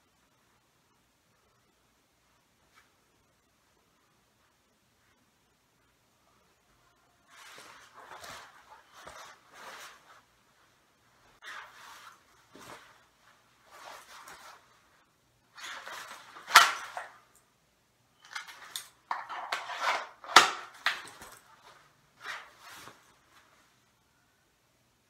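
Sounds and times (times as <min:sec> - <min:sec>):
nylon jacket rustling: 0:07.2 - 0:17.3, 0:19.4 - 0:23.9.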